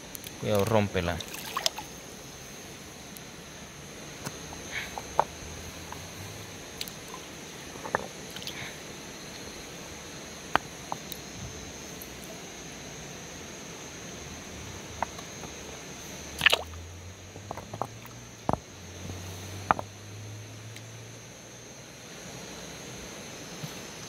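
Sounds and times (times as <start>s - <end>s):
water dripping: 0.2s - 1.9s, 16.3s - 18.5s
small water splashes: 1.0s - 2.0s, 8.3s - 8.7s, 16.3s - 16.8s
stones knocking: 7.8s - 8.1s.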